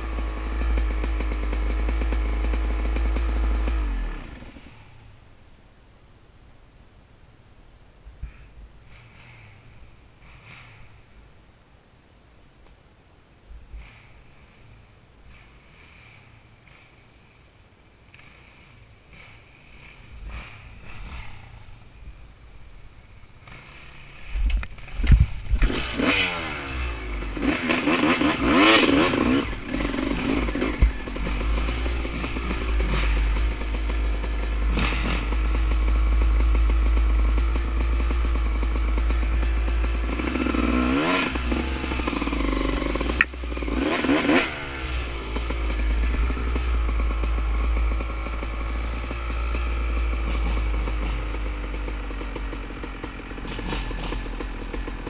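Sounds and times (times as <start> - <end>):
dirt bike engine revving: 0.0 - 5.1, 18.2 - 22.0, 23.4 - 55.0
wind rumble on camera: 24.2 - 25.8.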